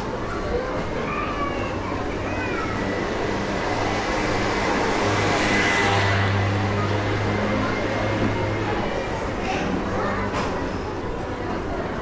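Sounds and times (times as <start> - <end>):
vehicle passing by: 2.8 - 9.0.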